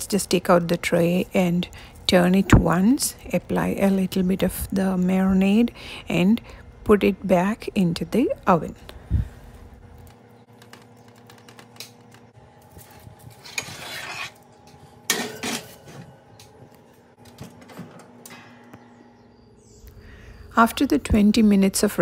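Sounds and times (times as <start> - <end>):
metal baking tray scraping and clattering: 13.3 - 14.4, 15.1 - 16.1
faint steady hum: 14.4 - 22.0.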